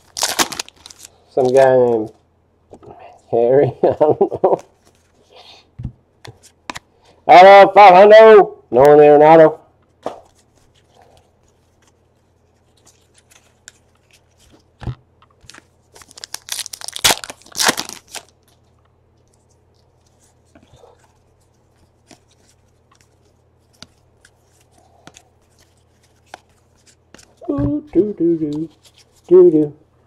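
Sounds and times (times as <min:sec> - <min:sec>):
foil wrapper tearing and crinkling: 0:00.0 - 0:01.7, 0:15.4 - 0:18.6
faint clicks of cards handled: 0:21.8 - 0:27.4.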